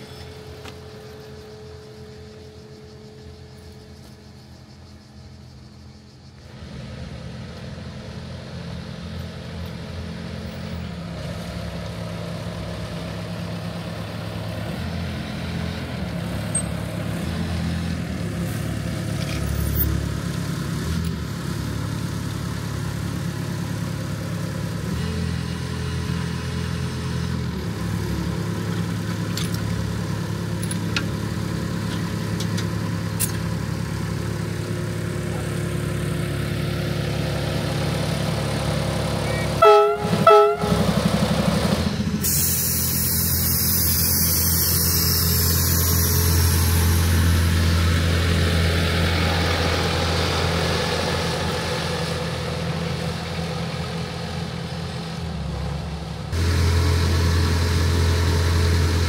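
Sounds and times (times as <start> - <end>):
miniature locomotive engine running: 26.9 - 54.7
locomotive horn toots: 39.2 - 41.2.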